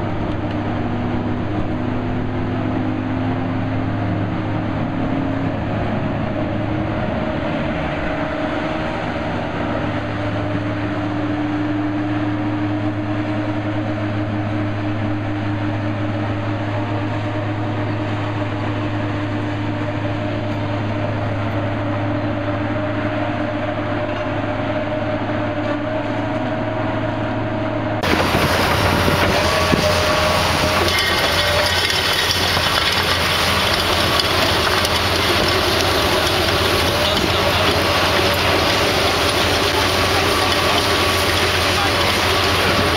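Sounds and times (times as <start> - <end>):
diesel engine running under load: 0.0 - 42.9
screening bucket rattling: 28.0 - 42.9.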